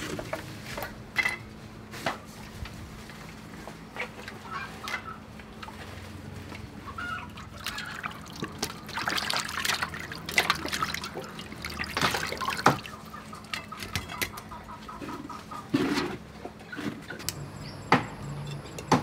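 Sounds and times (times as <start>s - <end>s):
water sloshing in metal basin: 6.6s - 14.8s.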